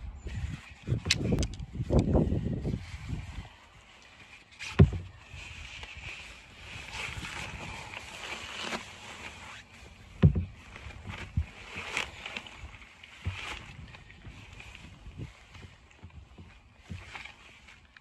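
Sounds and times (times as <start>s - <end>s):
wet net mesh rustling: 3.8s - 18.0s
dull thumps against mat: 4.8s - 5.1s, 10.2s - 11.4s.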